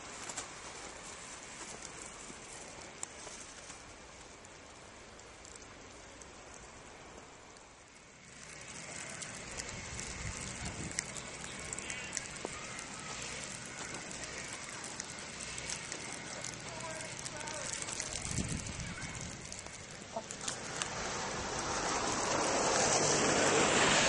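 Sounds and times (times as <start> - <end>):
scattered crackles: 0.0 - 24.0
wind rushing over microphone: 9.6 - 11.2, 18.1 - 19.8.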